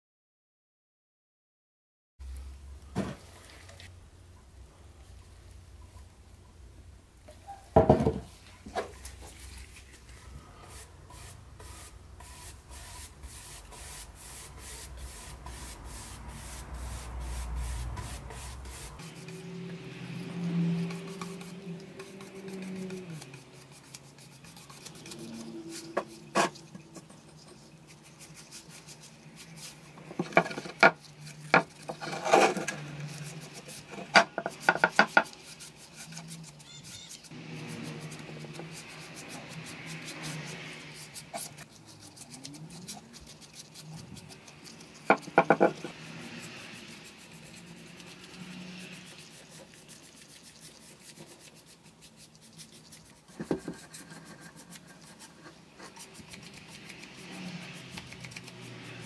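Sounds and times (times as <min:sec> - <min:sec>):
sharp knocks of wooden panel: 0:07.8 - 0:08.3
paintbrush swishing on wood: 0:08.3 - 0:59.0.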